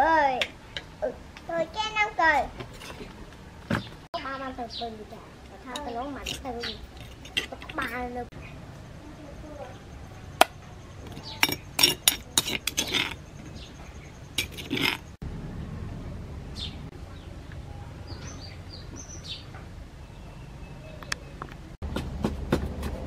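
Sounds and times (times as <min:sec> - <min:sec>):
bird chirps: 0:08.3 - 0:15.2, 0:16.0 - 0:21.5
metal spoon clinking on plate: 0:11.0 - 0:13.2.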